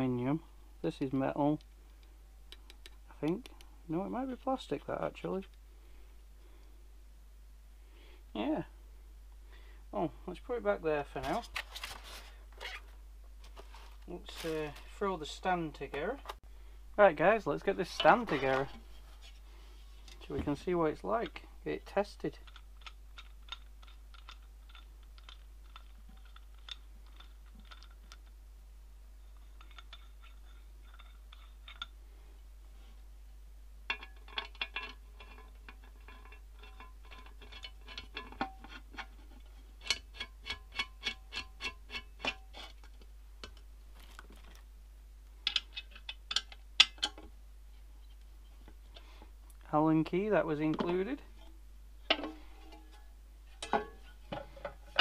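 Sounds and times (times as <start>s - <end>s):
small metal clicks and taps: 1.6s - 3.7s, 22.4s - 28.3s.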